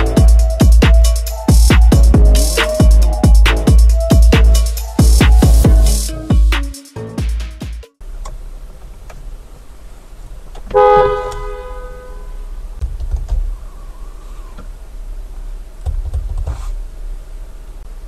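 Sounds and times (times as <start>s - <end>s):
low steady hum: 8.0s - 16.0s
car horn honk: 10.7s - 12.5s.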